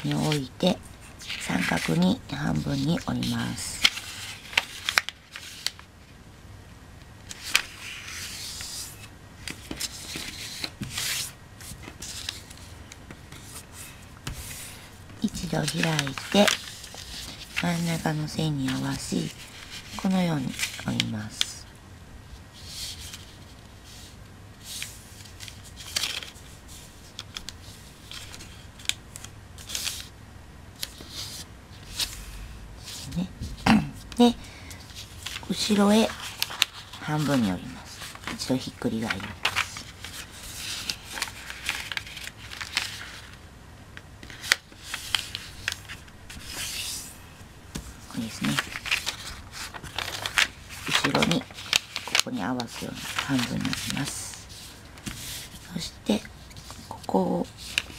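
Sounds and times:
paper crackling and tapping: 0:01.2 - 0:05.9, 0:14.2 - 0:21.5, 0:24.8 - 0:30.1, 0:32.9 - 0:43.4, 0:44.2 - 0:46.9, 0:47.7 - 0:57.9
fingers rubbing along paper fold: 0:48.1 - 0:57.0.

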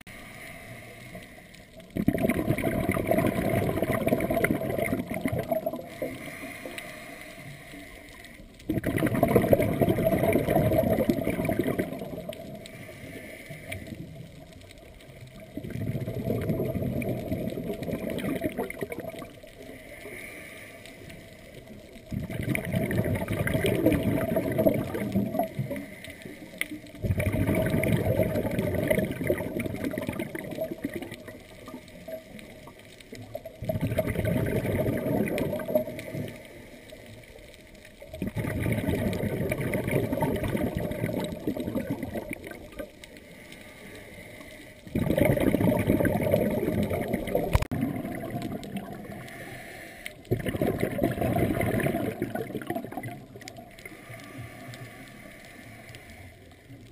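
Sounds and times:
bubbles gurgling underwater: 0:01.8 - 0:06.4, 0:08.6 - 0:12.8, 0:13.6 - 0:19.7, 0:21.6 - 0:26.0, 0:26.9 - 0:36.4, 0:37.9 - 0:43.0, 0:44.8 - 0:49.4, 0:50.2 - 0:54.0
regulator hissing inhalations: 0:49.1 - 0:50.2, 0:53.8 - 0:56.5.

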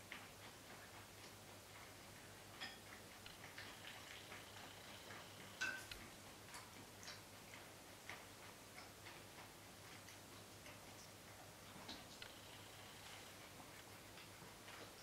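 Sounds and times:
cat eating wet food: 0:00.0 - 0:15.0
chopsticks clinking on pot: 0:02.6 - 0:02.9, 0:05.6 - 0:06.0.

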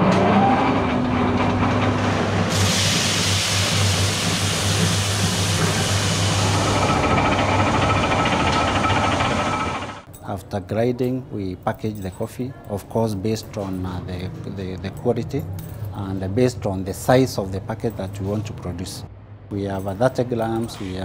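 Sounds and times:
coffee beans grinding hiss: 0:02.5 - 0:09.9
coffee grinder motor whine: 0:06.2 - 0:10.0.

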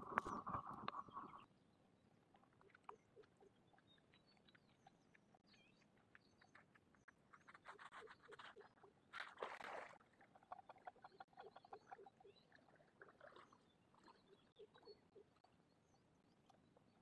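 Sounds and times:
small animals chirping rapidly: 0:02.6 - 0:09.1, 0:10.3 - 0:13.2
water splash: 0:09.1 - 0:10.2.

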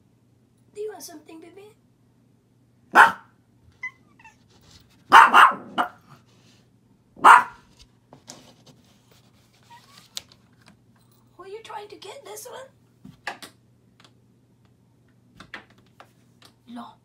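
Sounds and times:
dog barking: 0:02.9 - 0:03.4, 0:05.1 - 0:06.2, 0:07.2 - 0:07.6.

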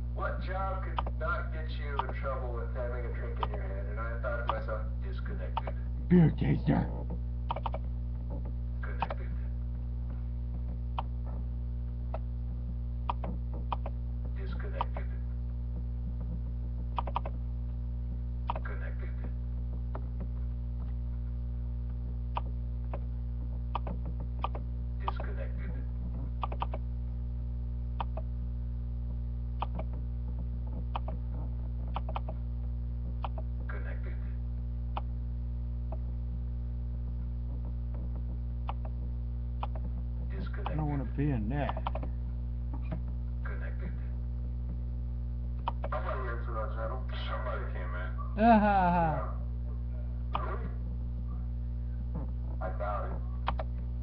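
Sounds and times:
electrical mains hum: 0:00.0 - 0:54.0
keyboard clicks: 0:04.4 - 0:04.6, 0:07.5 - 0:07.9, 0:13.0 - 0:14.0, 0:14.7 - 0:15.1, 0:17.0 - 0:17.4, 0:18.4 - 0:18.7, 0:23.7 - 0:25.3, 0:26.4 - 0:26.8, 0:28.0 - 0:28.3, 0:29.6 - 0:30.0, 0:30.9 - 0:31.2, 0:31.9 - 0:32.4, 0:33.2 - 0:33.5, 0:38.0 - 0:39.0, 0:39.6 - 0:39.9, 0:41.6 - 0:42.1, 0:45.6 - 0:45.9, 0:53.4 - 0:53.7
sharp single clicks: 0:07.5 - 0:07.8, 0:17.0 - 0:17.4, 0:26.4 - 0:26.8, 0:28.0 - 0:28.3, 0:31.9 - 0:32.4, 0:33.2 - 0:33.5, 0:39.6 - 0:39.8.

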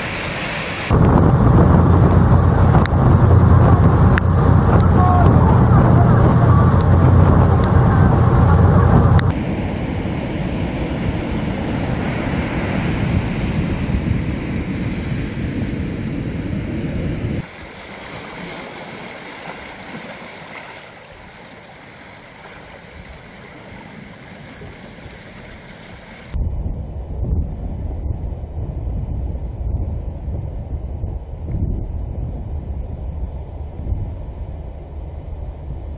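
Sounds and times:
surf breaking on sandy beach: 0:00.0 - 0:26.4
wind: 0:00.0 - 0:35.9
ferry engine rumble: 0:00.9 - 0:09.6
waves washing over pebbles: 0:17.4 - 0:26.4.

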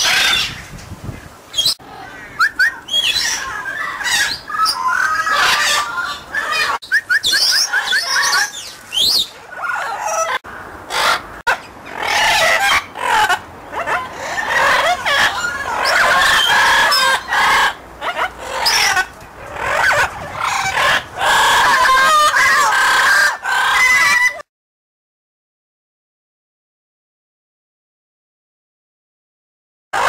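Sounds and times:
parrots squawking and whistling: 0:00.0 - 0:00.6, 0:01.6 - 0:24.4.

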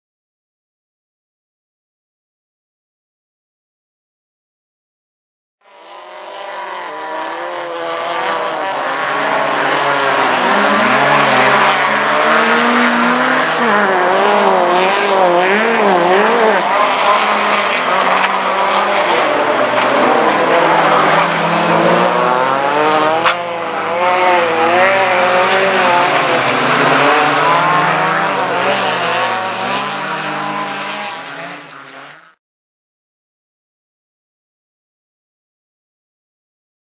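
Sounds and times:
car engines revving: 0:05.6 - 0:32.4.

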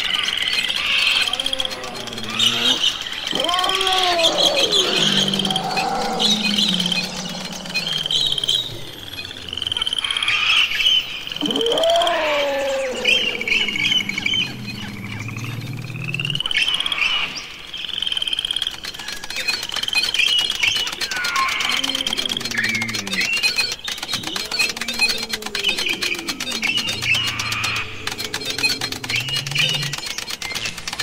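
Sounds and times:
rapid trilling chirping calls: 0:00.0 - 0:31.0
low hum: 0:12.8 - 0:16.6.

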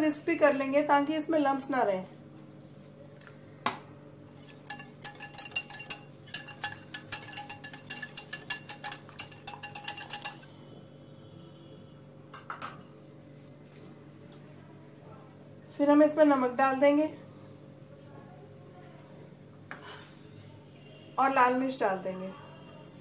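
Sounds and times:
whisk clinking against glass bowl: 0:04.3 - 0:10.5.

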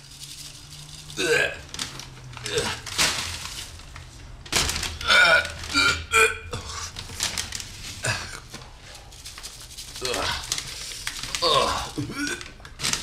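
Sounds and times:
man retching: 0:01.2 - 0:01.7, 0:05.0 - 0:06.9, 0:11.4 - 0:12.6.

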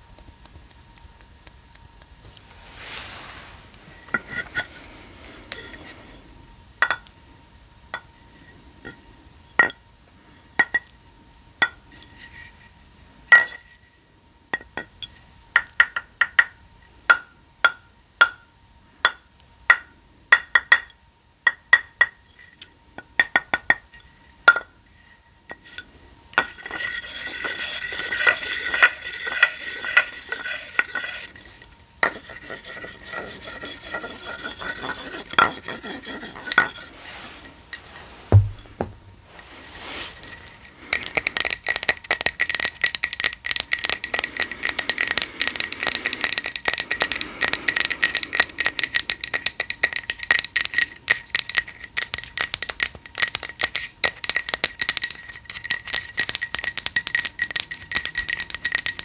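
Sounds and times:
fingernails scratching rhinestone mesh: 0:26.5 - 0:38.2.

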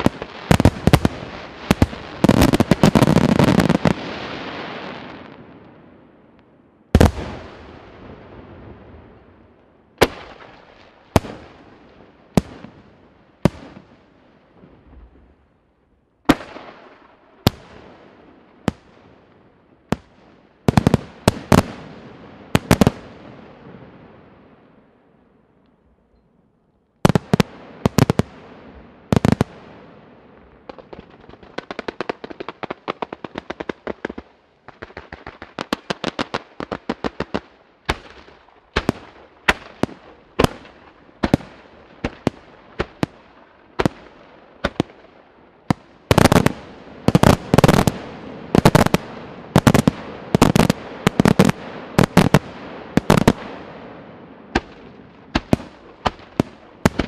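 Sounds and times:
firework bangs: 0:00.0 - 0:05.4, 0:07.0 - 0:08.4, 0:45.7 - 0:57.0
fireworks crackling: 0:00.0 - 0:05.7, 0:27.1 - 0:57.0.

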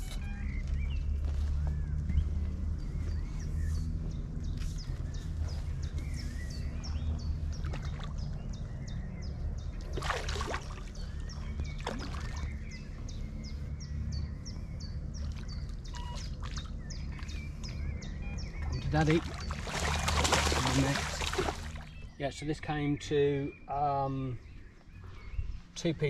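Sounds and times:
bird chirping: 0:00.0 - 0:26.0
steady low rumble: 0:00.0 - 0:26.0
fish splashing in water: 0:09.8 - 0:11.1, 0:11.7 - 0:12.5, 0:19.0 - 0:22.0.

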